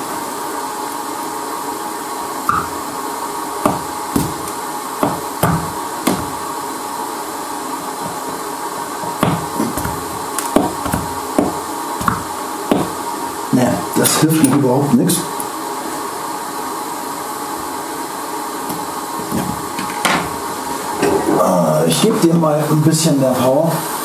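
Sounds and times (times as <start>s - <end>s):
hot-air tool hissing: 2.4s - 14.2s.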